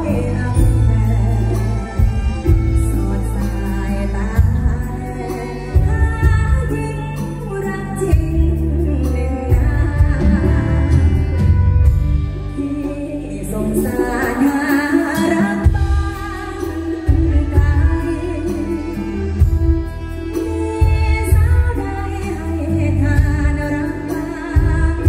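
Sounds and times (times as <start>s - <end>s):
live band with heavy bass: 0.0s - 25.0s
woman singing into microphone: 0.0s - 25.0s.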